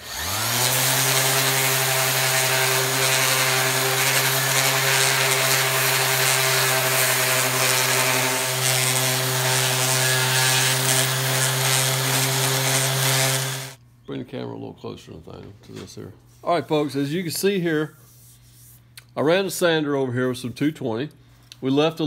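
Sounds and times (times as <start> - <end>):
orbit sander sanding metal: 0.0 - 13.8.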